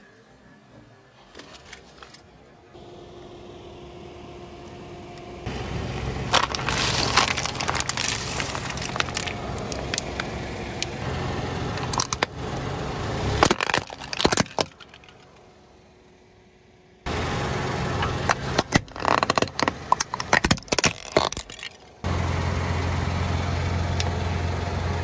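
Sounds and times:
car engine hum: 2.8 - 25.0
plastic toys cracking: 6.3 - 10.3, 11.8 - 12.3, 13.4 - 15.4, 18.2 - 22.0
plastic container crackling under tyre: 6.3 - 10.9, 13.4 - 15.4, 18.2 - 22.0.

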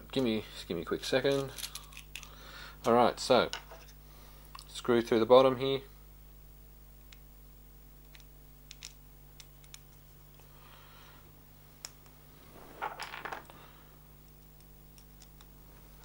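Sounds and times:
steady low hum: 0.0 - 16.0
small plastic parts clicking: 8.1 - 9.9.

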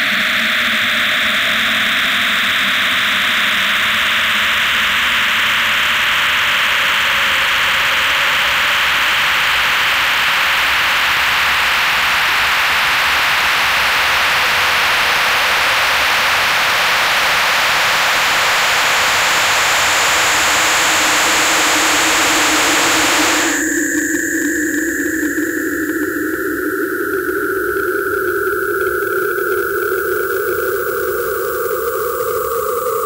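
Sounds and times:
hissing electronic noise: 17.7 - 23.8
low drone: 17.8 - 33.0
high thin steady tone: 19.2 - 23.7.

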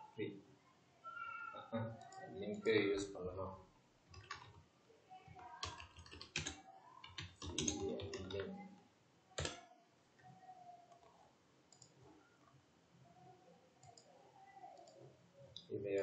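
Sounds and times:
typing on computer keyboard: 4.1 - 4.6, 5.4 - 8.6, 9.4 - 9.6.

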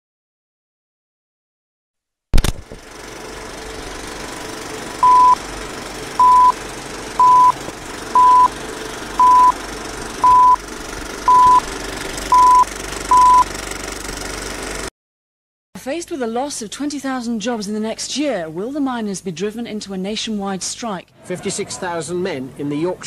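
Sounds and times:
short high beeps: 5.0 - 5.4, 6.2 - 6.6, 7.2 - 7.6, 8.2 - 8.5, 9.2 - 9.6, 10.2 - 10.6, 11.3 - 11.6, 12.3 - 13.5.

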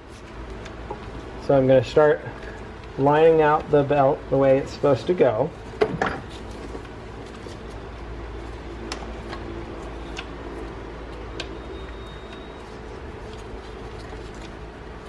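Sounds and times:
belt handling clicks and rubs: 0.0 - 1.4, 6.2 - 15.0
steady low hum: 0.0 - 15.0.

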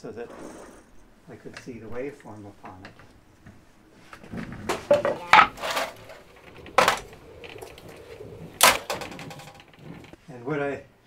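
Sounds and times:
metal and wood clattering: 2.6 - 10.2.

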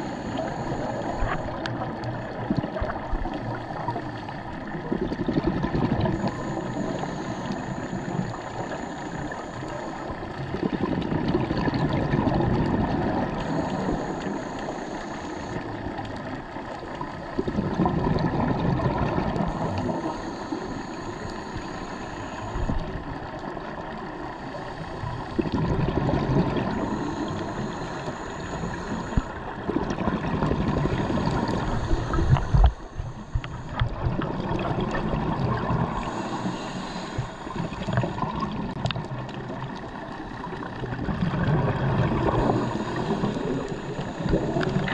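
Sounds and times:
regulator inhalation hiss: 0.0 - 1.6, 6.1 - 10.4, 13.2 - 15.9, 19.4 - 23.0, 26.7 - 29.5, 30.8 - 33.9, 35.8 - 38.2, 42.2 - 44.9
exhaled bubbles rumbling underwater: 0.0 - 44.9.

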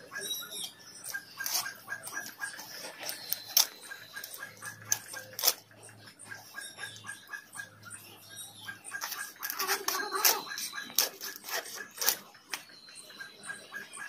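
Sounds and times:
blade scraping and cutting fish: 1.0 - 5.6, 9.0 - 12.2.

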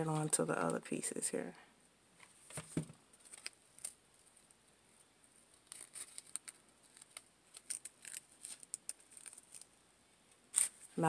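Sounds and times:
artificial flowers rustling: 2.2 - 11.0.

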